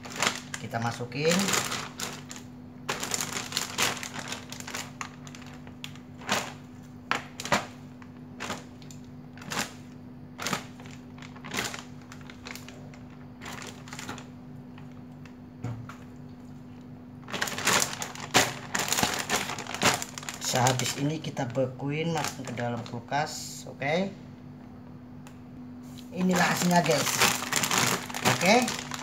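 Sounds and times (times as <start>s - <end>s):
pieces dropping into plastic bag: 0.0s - 7.8s, 8.4s - 9.8s, 10.4s - 15.0s, 17.2s - 21.0s, 26.1s - 29.0s
plastic bag crinkling: 0.0s - 15.0s, 17.2s - 23.0s, 26.0s - 29.0s
steady low hum: 0.0s - 29.0s.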